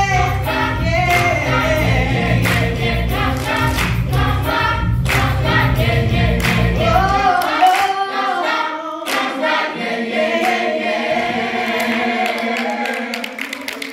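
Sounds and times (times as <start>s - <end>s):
low accompaniment: 0.0s - 7.4s
choir singing held notes: 0.0s - 13.9s.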